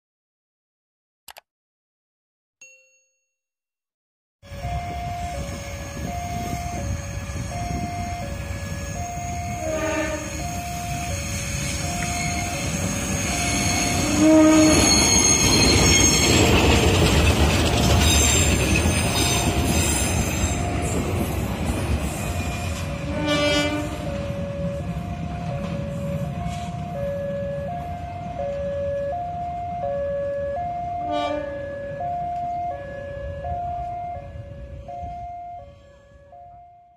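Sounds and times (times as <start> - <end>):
two-tone crossing alarm: 4.4 - 17.1, 17.9 - 36.9
train horn blasts: 4.6 - 15.4, 22.4 - 25.1, 30.9 - 31.8
train wheel squeal: 4.7 - 24.3.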